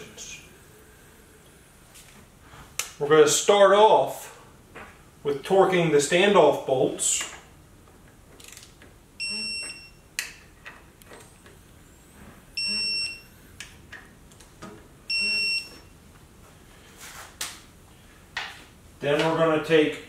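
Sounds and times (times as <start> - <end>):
torque wrench beeping: 9.2 - 10.0, 12.6 - 13.4, 15.1 - 15.8.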